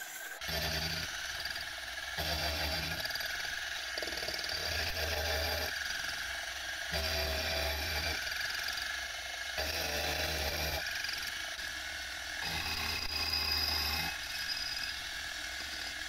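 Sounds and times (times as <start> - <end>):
milling spindle whining: 0.0 - 16.0.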